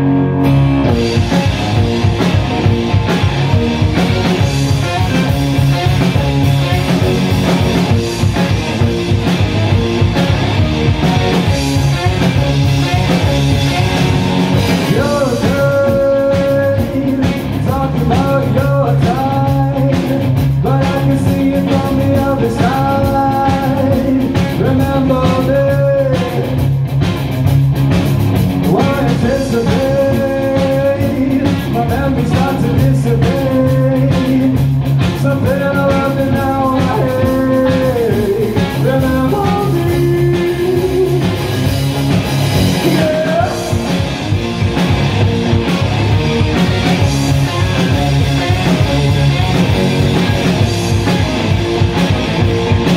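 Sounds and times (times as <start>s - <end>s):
drum kit: 0.0s - 52.9s
electric guitar: 0.0s - 52.9s
man singing: 14.7s - 26.6s, 28.6s - 41.5s, 42.7s - 44.0s.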